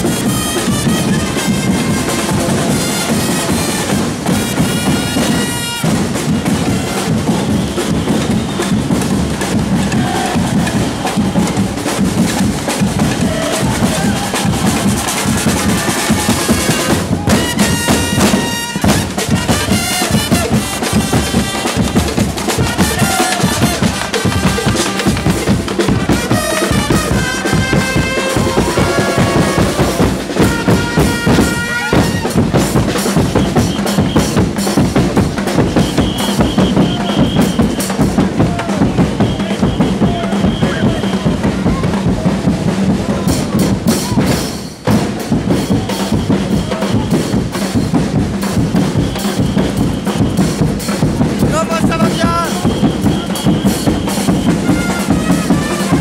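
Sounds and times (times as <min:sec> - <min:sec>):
trumpets playing: 0:00.0 - 0:07.8, 0:13.2 - 0:32.7, 0:51.6 - 0:56.0
marching drums: 0:00.0 - 0:56.0
voices chanting: 0:09.4 - 0:16.9, 0:21.6 - 0:30.4.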